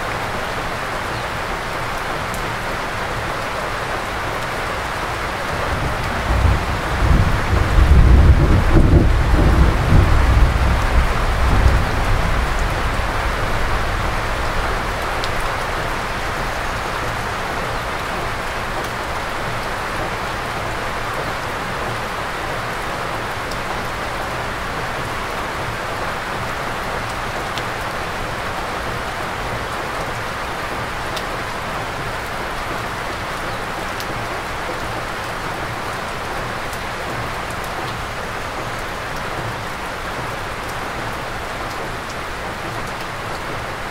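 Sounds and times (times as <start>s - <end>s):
heavy rain on trees: 0.0s - 43.9s
low thunder rumble: 5.6s - 14.8s.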